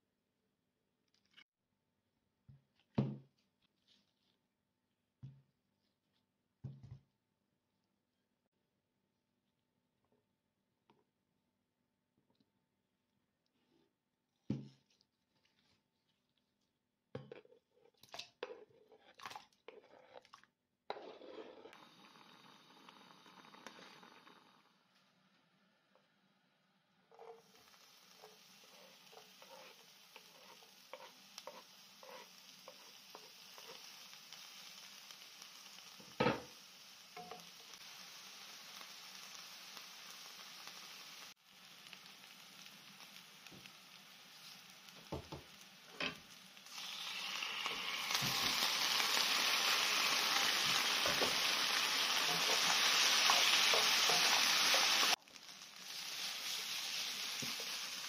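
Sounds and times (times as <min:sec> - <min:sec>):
onion sizzling in oil: 0:20.9 - 0:24.9, 0:27.0 - 0:58.0
potatoes frying loudly: 0:21.2 - 0:24.8, 0:27.2 - 0:58.0.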